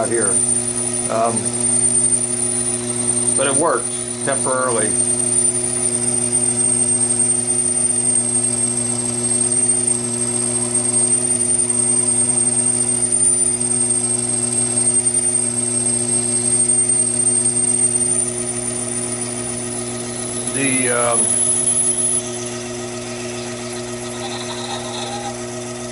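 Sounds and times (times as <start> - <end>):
lathe drilling into brass: 0.0 - 25.9.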